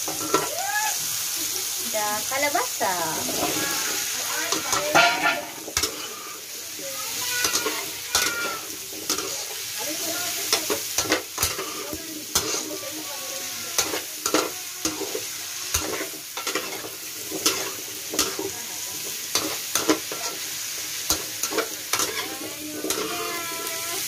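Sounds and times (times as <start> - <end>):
vegetables sizzling: 0.0 - 24.0
metal spoon scraping a wok: 3.2 - 6.6, 7.4 - 9.6, 10.5 - 13.0, 13.8 - 20.5, 21.1 - 23.7.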